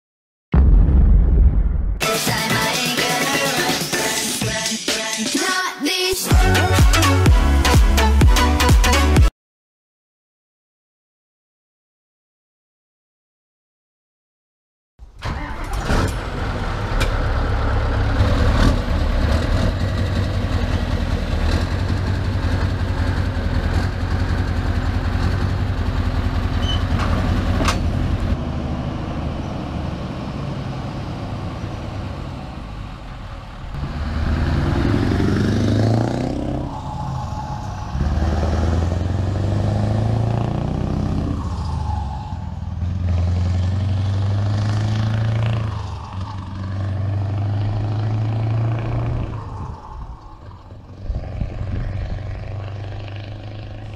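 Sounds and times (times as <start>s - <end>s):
diesel truck engine: 15.0s - 53.9s.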